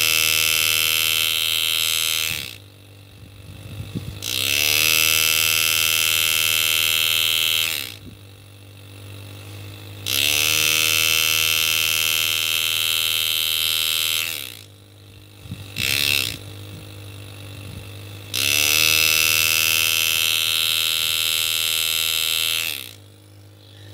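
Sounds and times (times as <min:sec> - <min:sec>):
engraving handpiece buzzing: 0:00.0 - 0:23.9
steady low hum: 0:00.0 - 0:23.9.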